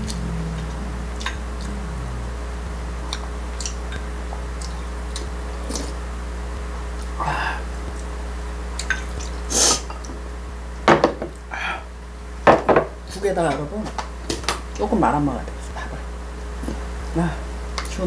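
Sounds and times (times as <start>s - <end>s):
mouth eating noises: 0.0s - 6.2s
steady low hum: 0.0s - 18.0s.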